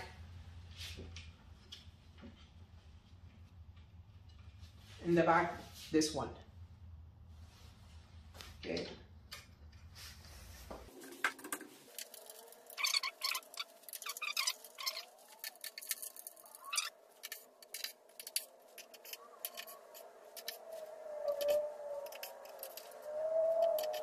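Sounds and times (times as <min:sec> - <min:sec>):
small metal clicks and rattles: 0:11.0 - 0:24.0.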